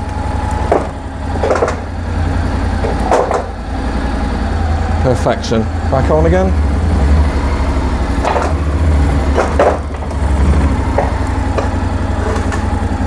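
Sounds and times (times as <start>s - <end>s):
motorcycle engine idling: 0.0s - 13.0s
wheel clunking onto wooden plank: 0.5s - 2.0s, 2.8s - 3.6s, 8.2s - 12.9s.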